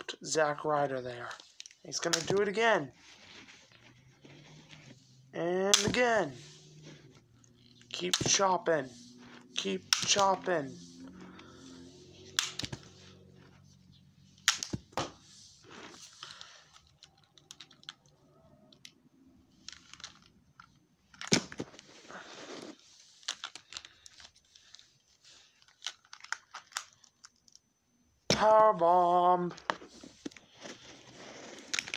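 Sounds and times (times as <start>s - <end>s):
rustling of hands: 6.1s - 14.4s, 29.6s - 31.9s.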